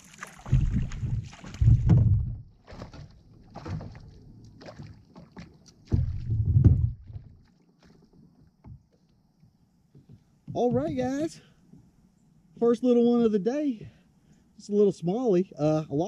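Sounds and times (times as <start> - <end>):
water splashes: 0.0 - 8.4
low rumbling bumps: 0.5 - 2.6, 5.9 - 7.3.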